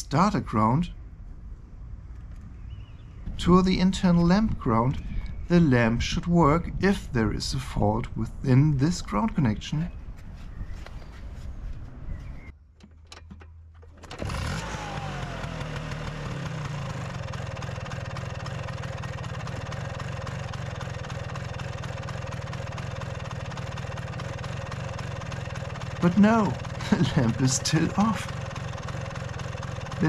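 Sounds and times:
scooter engine starting and idling: 12.8s - 30.0s.

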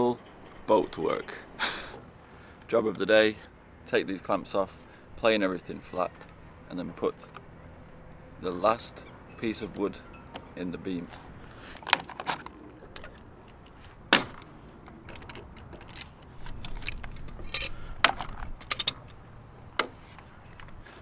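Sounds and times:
metal clamps clicking and clanking: 11.8s - 19.2s.

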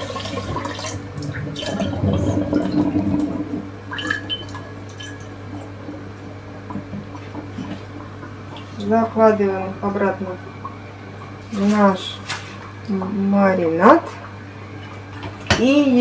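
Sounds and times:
water splashing in colander: 0.0s - 5.8s
water dripping into sink: 0.0s - 8.9s.

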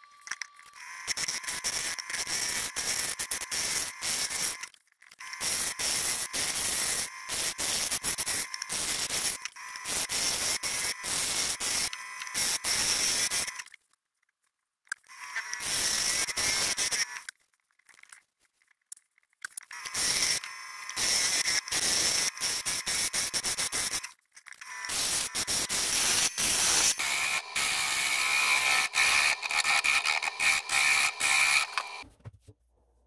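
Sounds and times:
lathe tool scraping wood: 24.9s - 32.0s.

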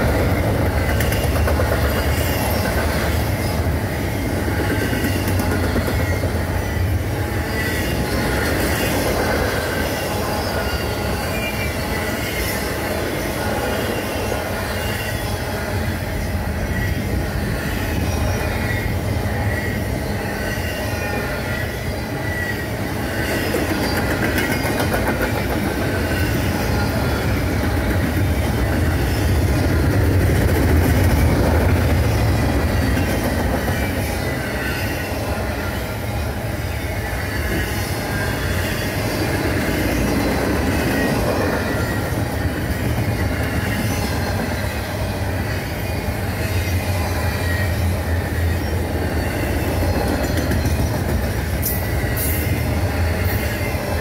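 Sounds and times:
train wheels rumbling on rail: 0.0s - 54.0s
faint wheel squeal: 16.7s - 24.6s.

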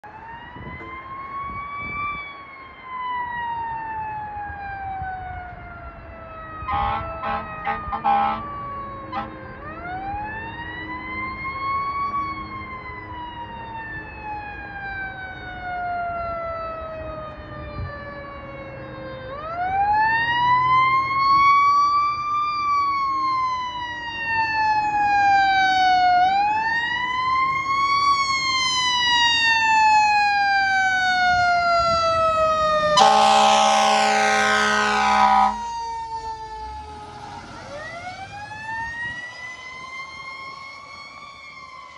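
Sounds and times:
fire engine siren wailing: 0.0s - 41.9s
air horn blast: 6.7s - 8.5s, 33.0s - 35.6s.

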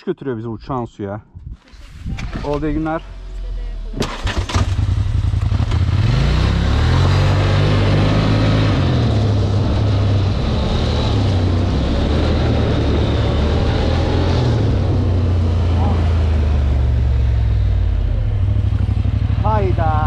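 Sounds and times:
atv engine pulling away: 4.0s - 20.0s.

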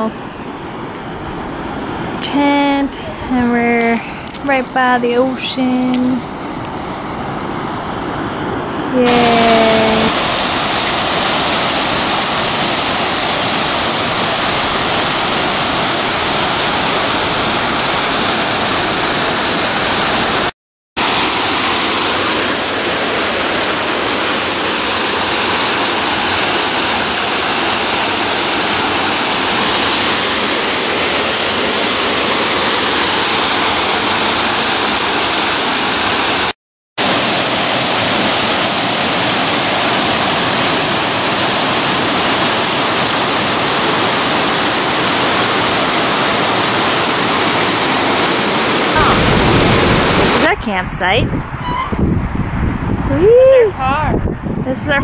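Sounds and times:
waterfall rushing over rocks: 9.0s - 50.5s.

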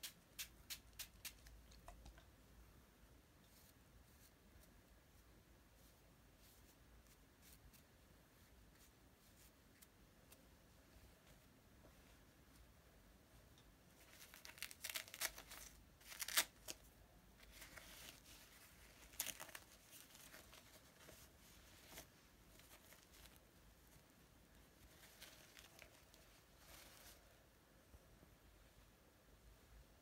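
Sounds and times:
nappy tabs ripping and crinkling: 14.0s - 16.9s, 18.8s - 21.1s, 25.0s - 26.2s.

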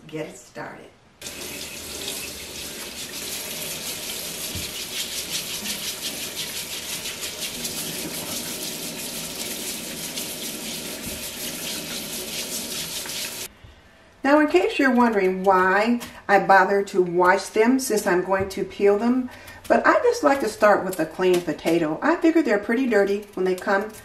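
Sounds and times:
faucet water splashing into sink: 1.2s - 13.5s
vegetable brush scrubbing: 1.2s - 13.5s.

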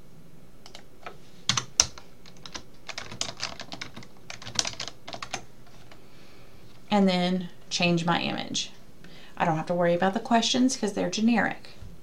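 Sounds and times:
typing on keyboard: 1.5s - 5.5s.

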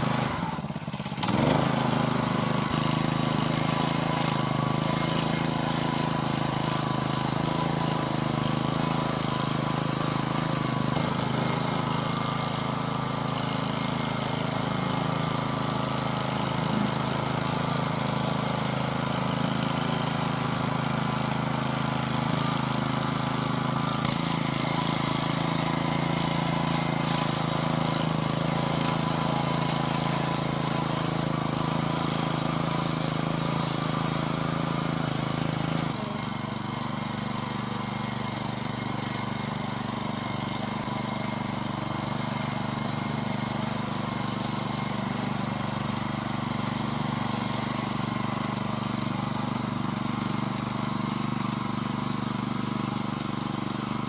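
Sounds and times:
walk-behind tractor engine running: 0.0s - 54.0s.

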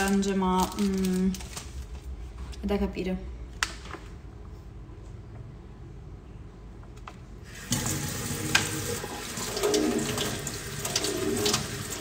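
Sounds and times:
water running into sink: 7.5s - 12.0s
kitchen tap turned on: 7.6s - 12.0s.

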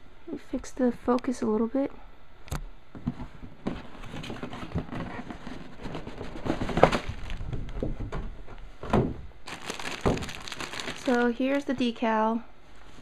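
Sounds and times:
cardboard lid scraping and rubbing: 3.7s - 7.3s.

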